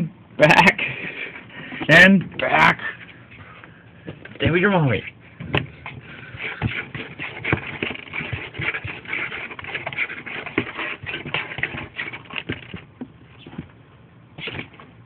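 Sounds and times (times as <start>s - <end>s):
kittens scuffling and scratching: 4.2s - 13.8s, 14.4s - 15.0s.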